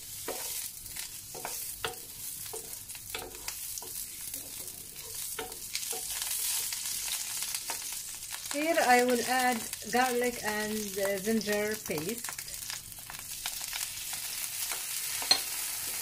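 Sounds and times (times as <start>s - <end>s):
spatula scraping pan: 0.0s - 7.9s
onion sizzling in oil: 0.0s - 16.0s.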